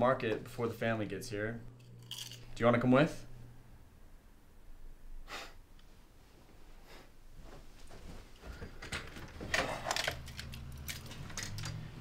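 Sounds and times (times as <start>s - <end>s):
footsteps: 7.4s - 9.5s.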